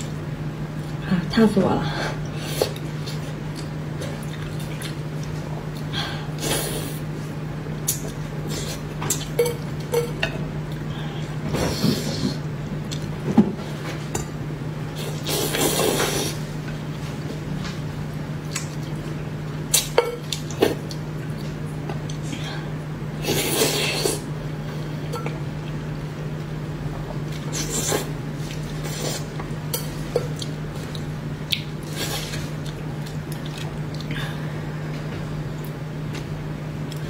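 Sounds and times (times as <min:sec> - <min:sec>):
steady low hum: 0:00.0 - 0:37.0
wet eating sounds: 0:02.2 - 0:07.0, 0:18.4 - 0:22.5, 0:26.8 - 0:34.5.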